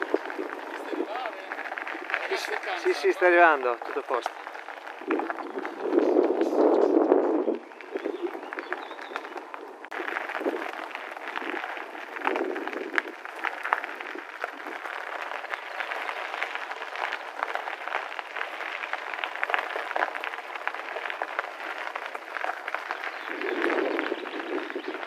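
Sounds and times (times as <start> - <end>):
bicycle tyres rolling on gravel: 0.0 - 25.0.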